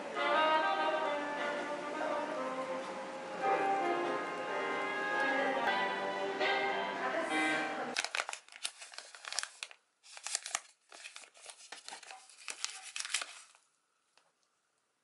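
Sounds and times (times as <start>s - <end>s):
paper packet tearing and crinkling: 8.0s - 13.7s.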